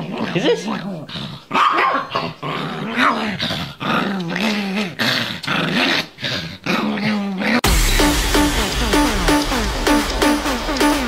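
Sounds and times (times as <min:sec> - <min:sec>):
small dog growling: 0:00.0 - 0:07.6.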